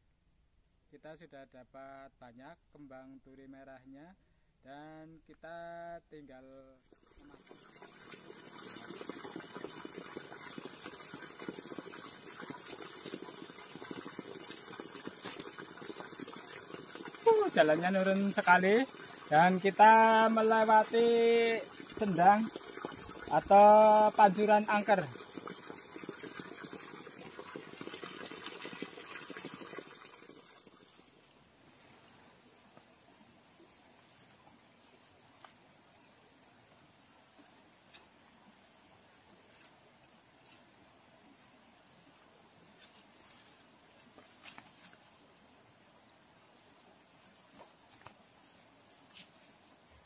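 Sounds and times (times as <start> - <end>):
water pouring and splashing: 6.9 - 31.8.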